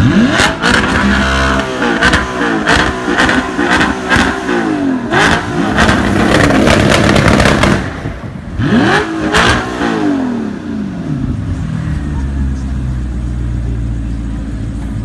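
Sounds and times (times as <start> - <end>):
car engines revving: 0.0 - 15.0
exhaust pops and crackles: 5.2 - 8.4.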